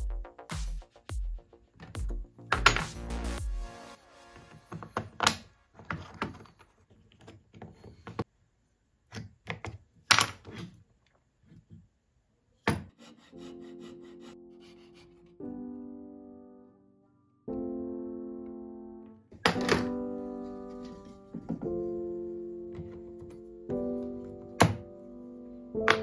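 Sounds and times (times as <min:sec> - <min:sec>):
fret saw cutting wood: 0:12.9 - 0:15.3
soft piano music: 0:13.4 - 0:26.0.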